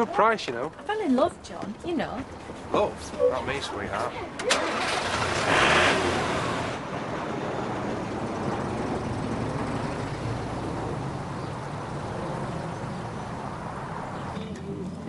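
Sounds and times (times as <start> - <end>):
road noise: 0.0 - 15.0
car engine driving: 4.4 - 7.0.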